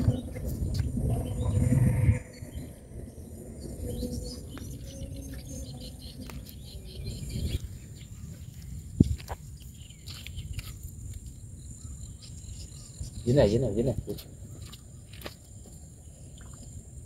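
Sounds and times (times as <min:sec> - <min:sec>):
low rumble: 0:00.0 - 0:07.6
small birds chirping: 0:00.0 - 0:17.0.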